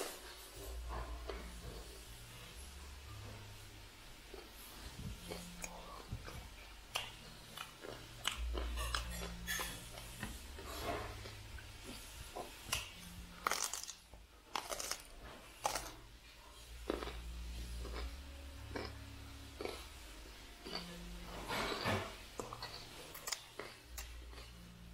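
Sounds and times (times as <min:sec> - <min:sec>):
low hum: 0:00.0 - 0:24.9
crunchy chewing: 0:04.3 - 0:20.0, 0:20.6 - 0:24.8.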